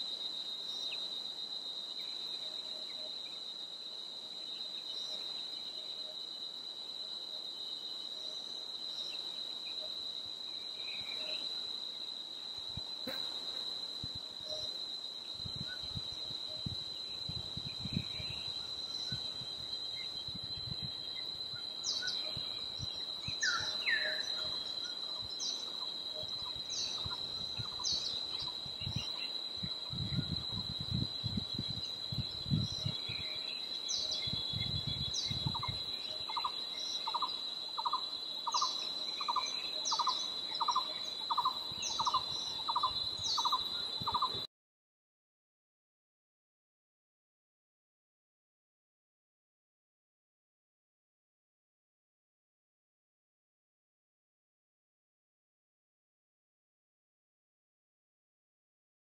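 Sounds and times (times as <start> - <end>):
high-pitched insect drone: 0.0 - 44.5.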